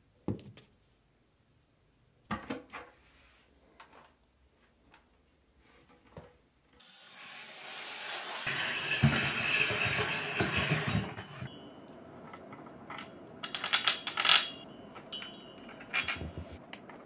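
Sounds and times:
screws clinking on metal: 12.3 - 16.6.

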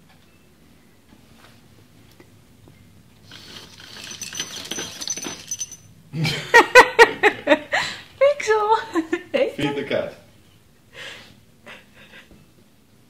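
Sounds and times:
servo motor turning: 3.3 - 4.8
kibble rattling into plastic bowl: 3.3 - 5.8.

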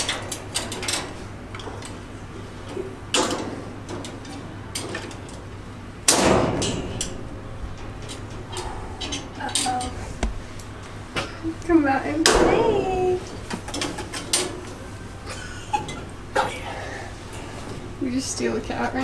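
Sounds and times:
wire cage door clicks and rattles: 0.0 - 2.0, 3.1 - 5.4.

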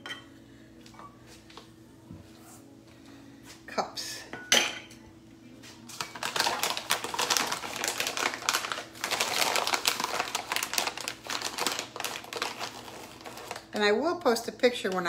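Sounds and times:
plastic bag crinkling: 6.0 - 14.1.

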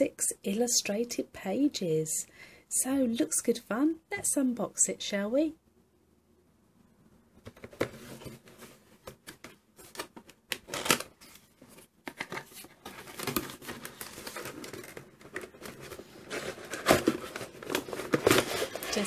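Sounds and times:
cardboard scraping and rustling: 7.5 - 19.0.

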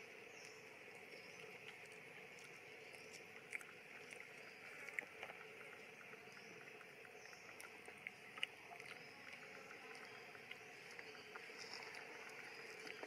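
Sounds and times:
faint outdoor hiss: 0.0 - 13.0.

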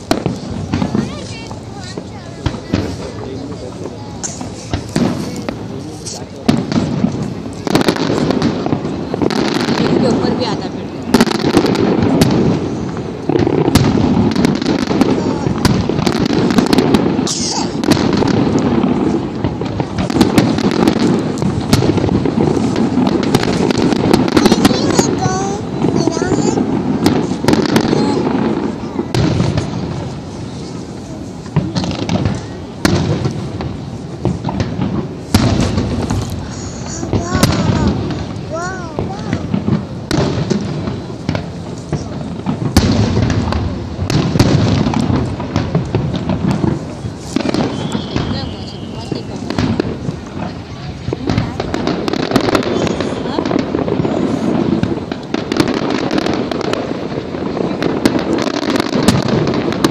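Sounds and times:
fireworks bangs and crackles: 0.0 - 59.9.

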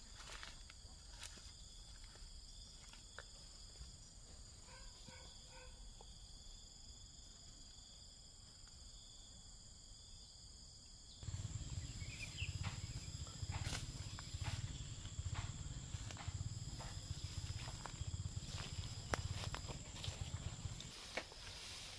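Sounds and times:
insects buzzing: 0.0 - 21.9
low rumble: 11.2 - 20.9.

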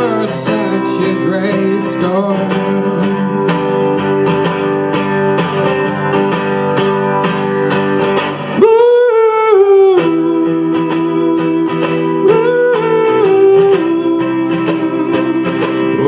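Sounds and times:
man singing into a microphone: 0.0 - 3.7, 8.5 - 16.0
acoustic guitar strumming: 0.0 - 16.0.

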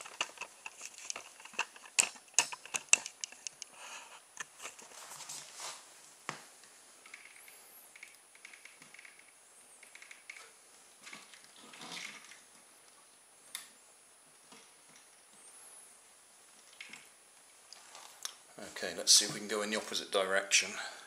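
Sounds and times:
plastic parts clicking and tapping: 0.0 - 3.8.

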